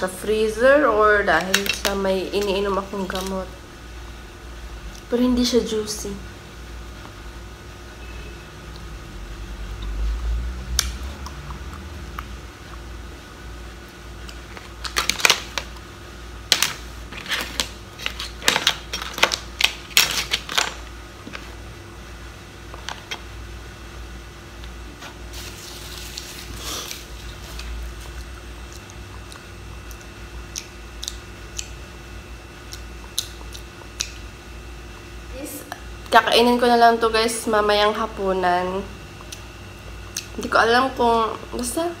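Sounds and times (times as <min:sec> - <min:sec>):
crab shells cracking: 0:14.3 - 0:15.9, 0:16.5 - 0:21.0.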